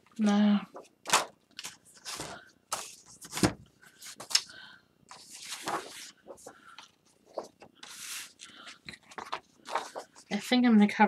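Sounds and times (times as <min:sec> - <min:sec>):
paper rustling and sliding: 0:05.1 - 0:10.6.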